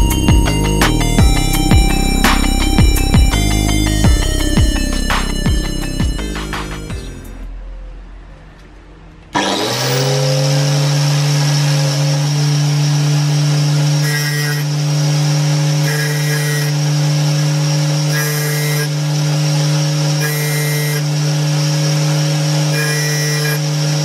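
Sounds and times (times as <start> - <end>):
angle grinder running: 0.0 - 7.4, 9.3 - 24.0
grinding rasps on saw blade: 9.4 - 24.0.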